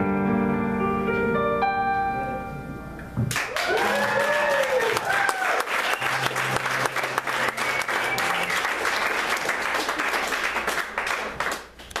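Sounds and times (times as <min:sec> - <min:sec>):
audience applauding: 0:03.3 - 0:12.0.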